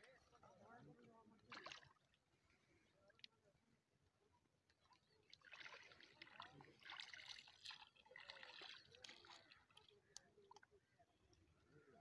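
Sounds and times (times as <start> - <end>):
feet wading through shallow water: 1.3 - 2.8, 4.8 - 11.0.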